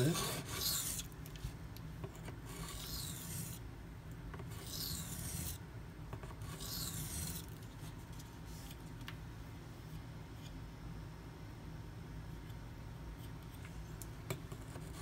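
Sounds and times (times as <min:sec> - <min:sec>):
knife blade stroking whetstone: 0:00.0 - 0:01.1, 0:02.6 - 0:03.6, 0:04.6 - 0:05.6, 0:06.5 - 0:07.5.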